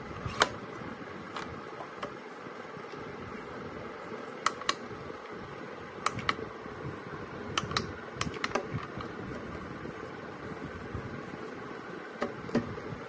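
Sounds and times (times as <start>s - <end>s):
push-button switch clicking: 4.4s - 4.8s, 6.0s - 6.4s.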